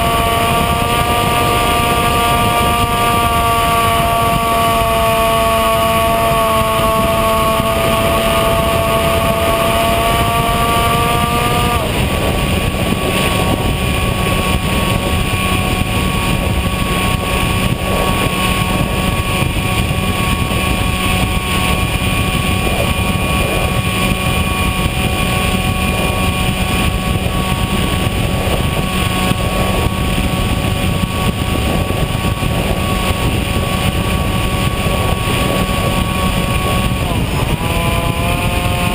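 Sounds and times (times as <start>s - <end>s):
electric motor and propeller whine: 0.0s - 38.9s
rushing air: 0.0s - 38.9s.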